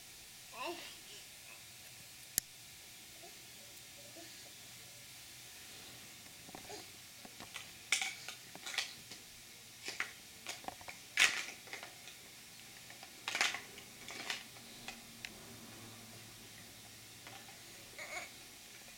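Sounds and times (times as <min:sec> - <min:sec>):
plastic toy blocks clacking: 0:09.8 - 0:12.2, 0:12.9 - 0:15.0.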